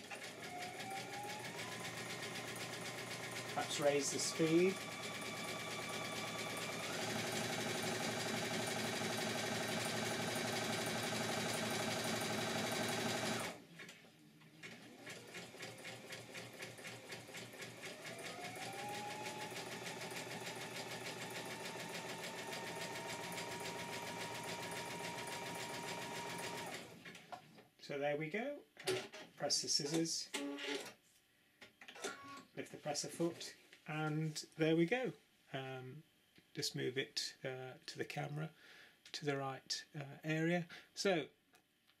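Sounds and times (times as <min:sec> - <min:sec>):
sewing machine motor hum: 0:00.0 - 0:13.6, 0:14.7 - 0:27.2.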